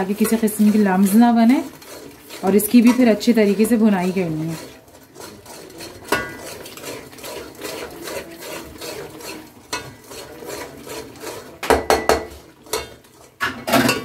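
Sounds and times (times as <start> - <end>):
spoon scraping a cooking pot: 0.0 - 14.0
spoon clinking against pot: 5.3 - 6.8, 9.7 - 10.1, 11.6 - 14.0.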